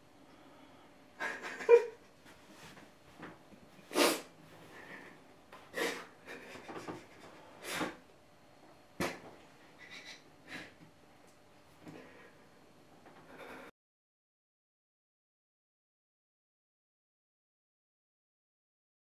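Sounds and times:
man crying with sharp breaths: 4.7 - 8.0, 13.2 - 13.7.

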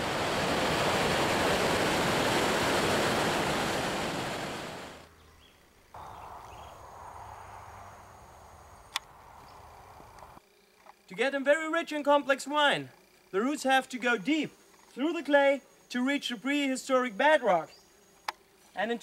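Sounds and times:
water rushing over rapids: 0.0 - 5.1
faint outdoor hiss: 0.0 - 19.0.

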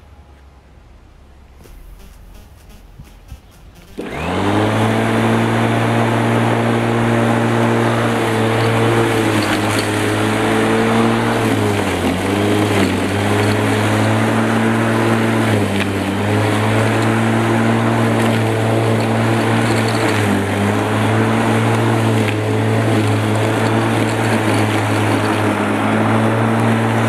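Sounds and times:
electric lawn mower cutting grass: 3.7 - 27.0.

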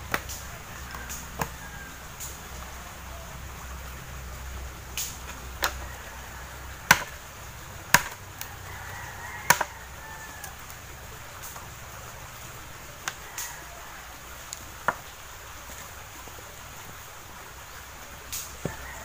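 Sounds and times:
machete chopping wood: 0.0 - 1.6, 5.0 - 5.9, 6.8 - 7.2, 7.9 - 8.2, 9.4 - 9.7.

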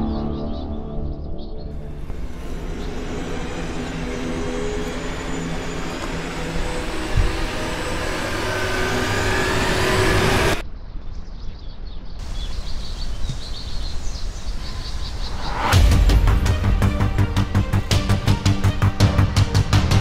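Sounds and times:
loud rumbling drone: 0.0 - 10.6, 12.2 - 20.0
rapid high bird chirps: 11.3 - 16.2.

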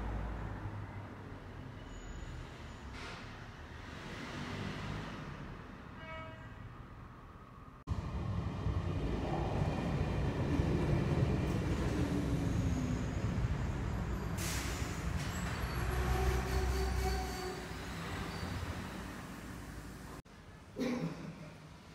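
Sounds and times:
train rumble: 7.9 - 20.2.

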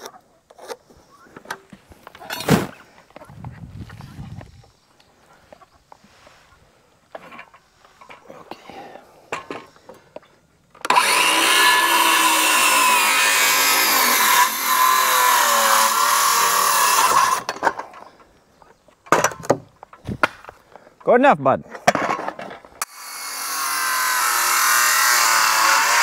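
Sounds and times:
power tool motor whining: 10.8 - 17.5, 22.8 - 26.0.

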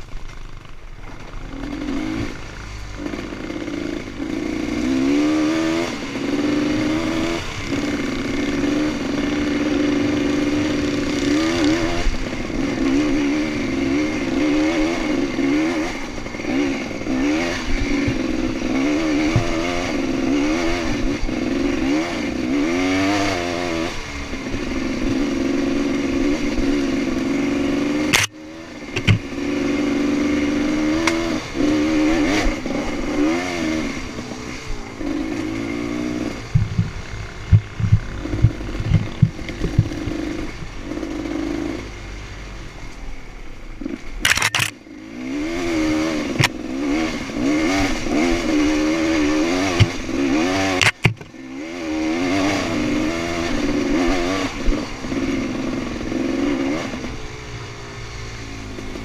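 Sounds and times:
dirt bike engine revving: 0.0 - 42.8, 43.7 - 59.0
low knocks and clatter: 36.4 - 40.7.

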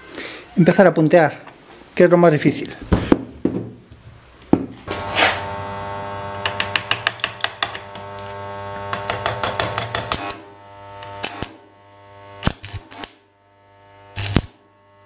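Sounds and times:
arc welder humming and crackling: 4.8 - 15.0.

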